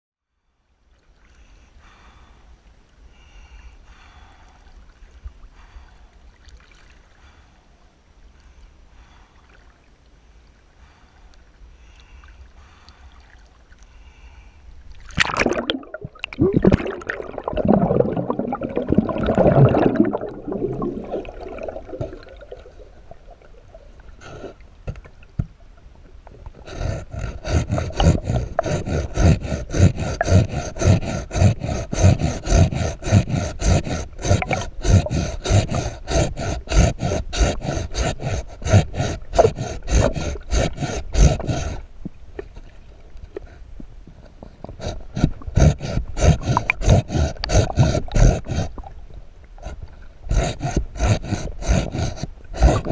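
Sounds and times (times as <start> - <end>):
hand saw rasping underwater: 26.4 - 42.7, 43.4 - 49.0, 49.6 - 52.9.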